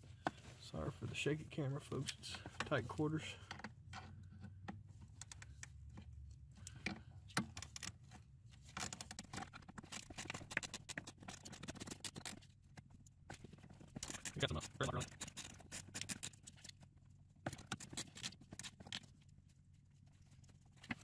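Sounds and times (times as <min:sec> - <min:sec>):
tool clicking and scraping: 0:08.6 - 0:16.8.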